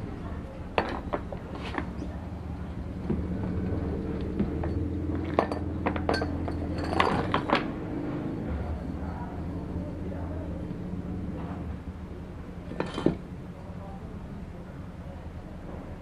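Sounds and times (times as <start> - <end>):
steady low hum: 0.0 - 16.0
metal tools clinking: 4.6 - 7.6, 12.7 - 13.2.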